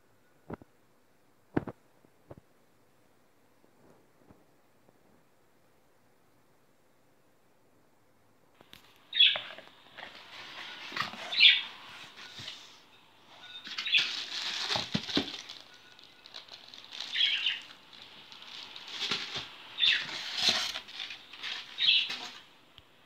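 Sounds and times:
plastic wrap rustling: 8.6s - 22.5s.

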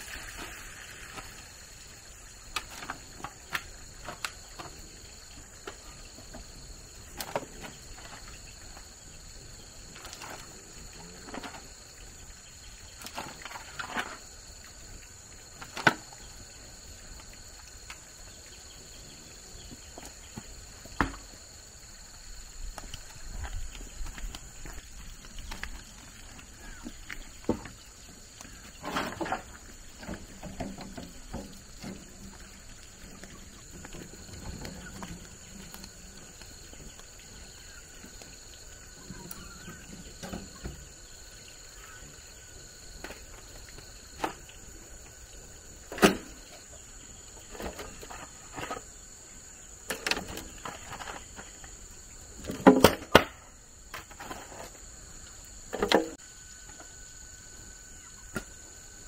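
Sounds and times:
sharp knocks and thumps: 19.6s - 21.4s, 26.7s - 27.8s, 28.5s - 32.3s.

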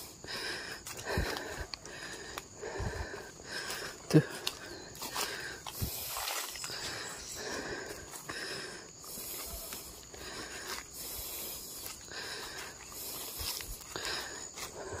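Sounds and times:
man breathing hard: 0.0s - 15.0s
footsteps in dry leaves: 3.5s - 8.3s, 9.0s - 15.0s.

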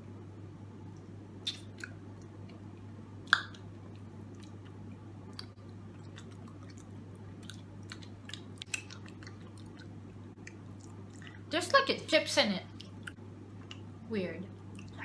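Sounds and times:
chewing and lip smacking: 1.4s - 2.6s, 3.3s - 11.5s, 12.7s - 13.9s, 14.7s - 15.0s.

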